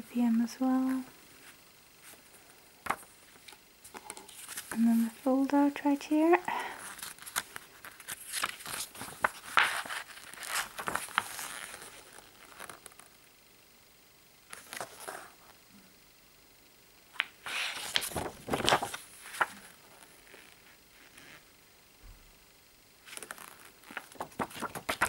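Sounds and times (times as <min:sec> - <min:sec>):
paper rustling and crinkling: 0:02.8 - 0:05.1, 0:06.8 - 0:13.0, 0:14.5 - 0:15.3, 0:17.2 - 0:21.2, 0:23.0 - 0:25.0.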